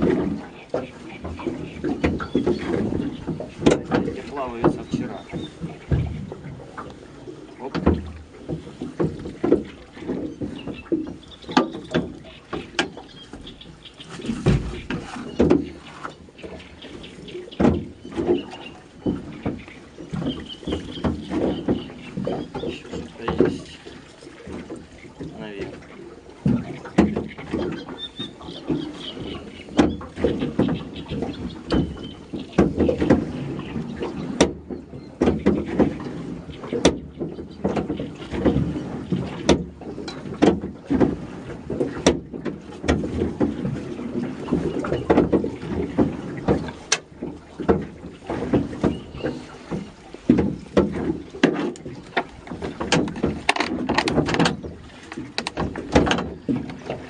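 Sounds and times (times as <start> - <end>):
net hauled over boat hull: 14.0 - 16.6, 29.7 - 57.0.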